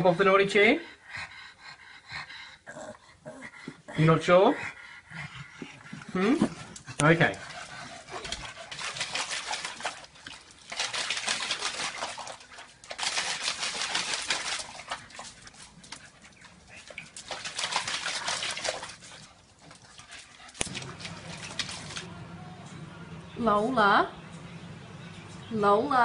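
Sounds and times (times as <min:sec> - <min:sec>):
dog splashing in water: 0:08.0 - 0:22.2.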